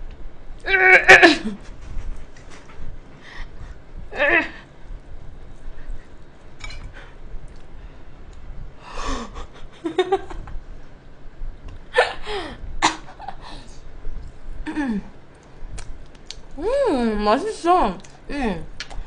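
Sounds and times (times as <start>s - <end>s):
woman's non-word vocal sounds: 4.1s - 4.7s, 16.6s - 18.8s
woman laughing: 9.4s - 10.5s
small clicks while eating: 15.3s - 16.6s, 18.0s - 18.2s, 18.8s - 19.0s.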